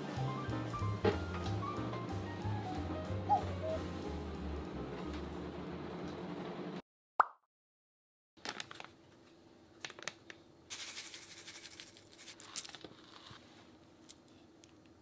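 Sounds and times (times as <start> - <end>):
plastic packets crinkling: 8.4 - 9.0, 9.8 - 13.4
powder pouring into a bowl: 10.7 - 12.8.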